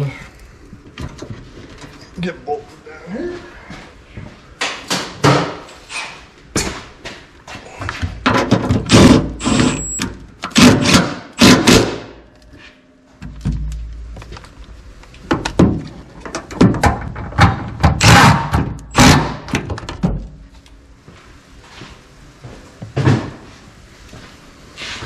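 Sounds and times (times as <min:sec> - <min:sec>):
impact driver hammering bolts: 0:08.3 - 0:12.2.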